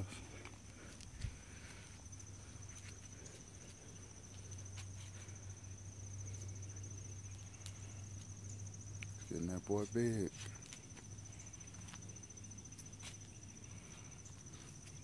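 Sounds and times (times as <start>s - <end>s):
faint low hum: 0.0s - 15.0s
insects trilling: 0.0s - 15.0s
light ticks: 9.0s - 9.2s.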